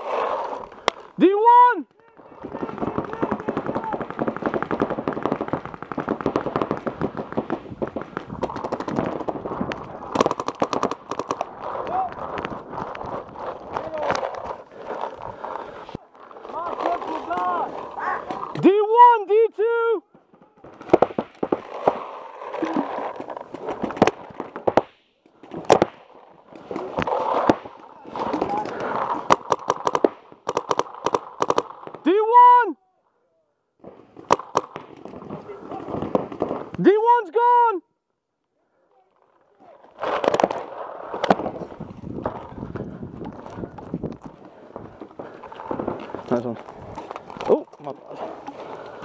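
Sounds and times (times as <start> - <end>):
paintball guns firing: 2.2 - 18.7, 20.2 - 22.8, 23.4 - 32.1, 33.9 - 36.9, 40.0 - 42.5.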